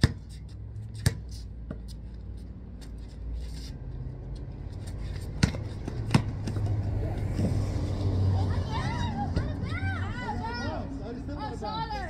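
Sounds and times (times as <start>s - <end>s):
basketball bouncing on concrete: 0.0s - 2.0s, 5.2s - 7.5s.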